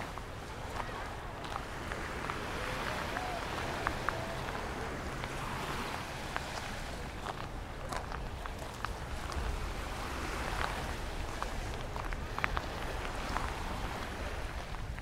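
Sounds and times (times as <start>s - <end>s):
waves washing on shore: 0.0s - 15.0s
wind rumble on microphone: 0.0s - 15.0s.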